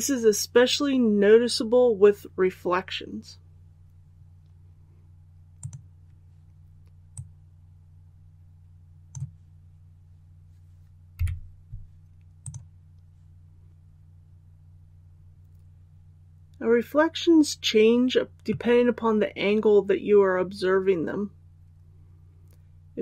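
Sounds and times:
steady low hum: 0.0 - 23.0
computer mouse clicking: 5.6 - 5.9, 9.0 - 9.4, 11.2 - 11.4, 12.4 - 12.7.

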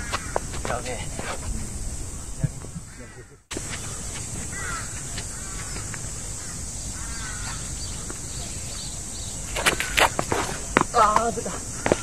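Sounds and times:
steady high hiss: 0.0 - 12.0
short bird calls: 2.2 - 10.1.

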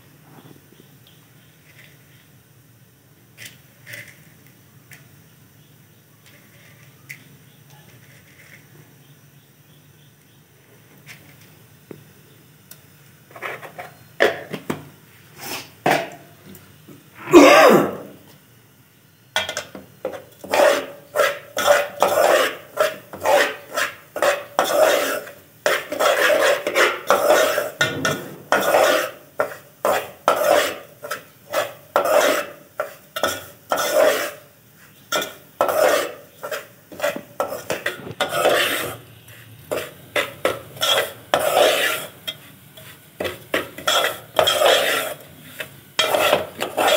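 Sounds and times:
person coughing: 17.2 - 18.2
spoon scraping in metal pot: 19.4 - 39.1, 39.7 - 46.9.

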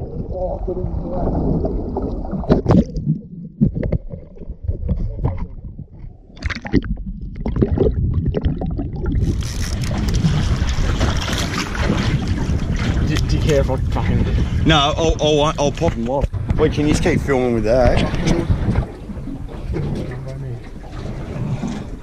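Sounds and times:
muffled underwater sound: 0.0 - 2.8
water splashing: 0.0 - 14.6, 16.8 - 22.0
wind on microphone: 7.0 - 22.0.

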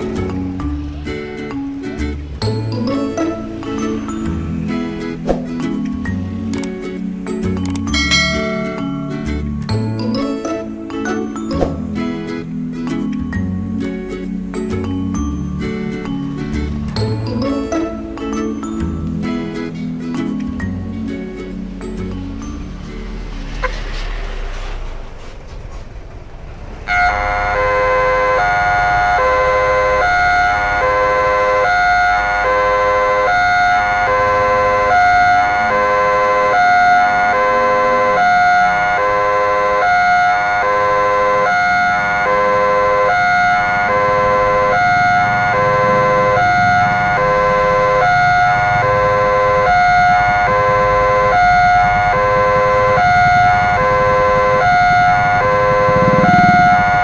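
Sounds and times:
level crossing electronic alarm: 26.9 - 57.0.

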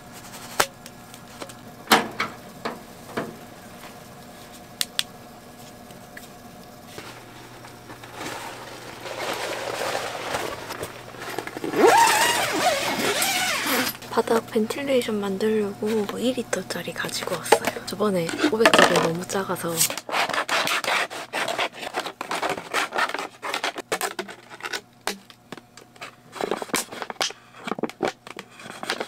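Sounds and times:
steady low hum: 0.0 - 29.0
tent zipper rasping: 11.6 - 14.0.

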